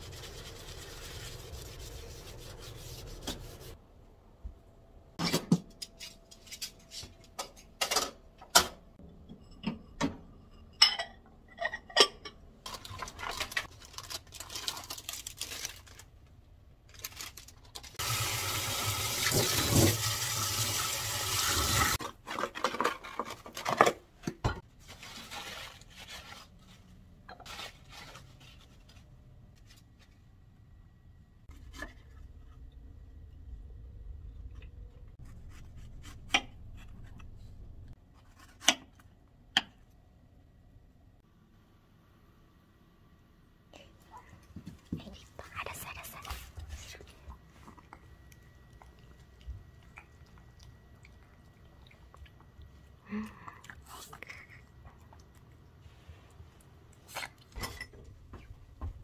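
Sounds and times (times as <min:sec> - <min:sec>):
kitchen knocks and clatters: 0:05.2 - 0:13.7, 0:22.0 - 0:24.7.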